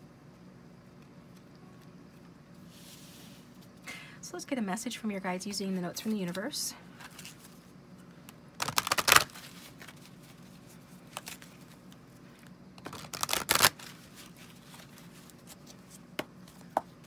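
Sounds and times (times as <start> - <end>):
deck of cards being shuffled: 8.6 - 12.0, 12.8 - 16.7.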